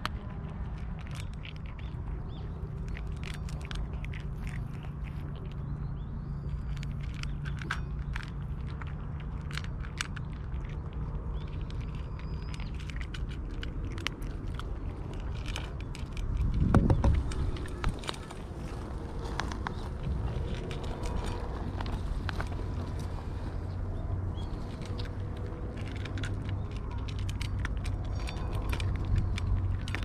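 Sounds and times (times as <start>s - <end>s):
cats crunching dry kibble: 0.0s - 30.0s
low rumble: 0.0s - 30.0s.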